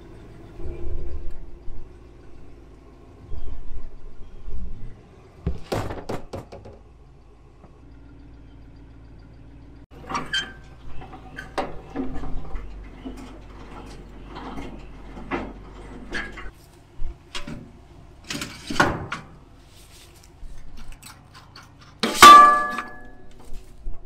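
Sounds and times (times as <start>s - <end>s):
low steady rumble: 0.0s - 5.7s, 6.4s - 24.0s
metal clanks and knocks: 9.9s - 16.6s, 17.3s - 19.4s, 21.0s - 23.6s.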